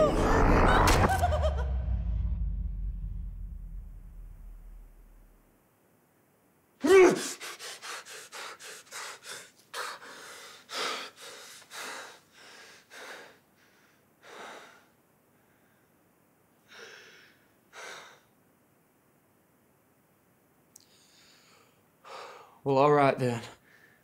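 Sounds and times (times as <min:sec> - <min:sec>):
man panting heavily: 0:07.1 - 0:14.9.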